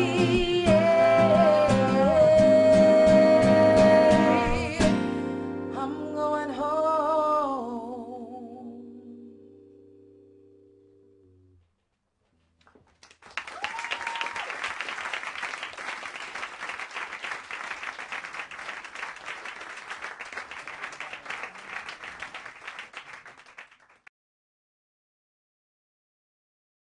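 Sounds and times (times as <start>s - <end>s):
audience applauding: 12.7s - 24.1s.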